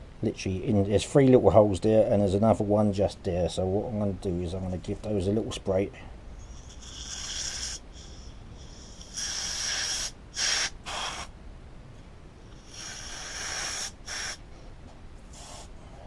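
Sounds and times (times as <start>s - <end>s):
aerosol spray hissing: 9.0s - 11.3s, 12.6s - 14.4s, 15.3s - 15.7s.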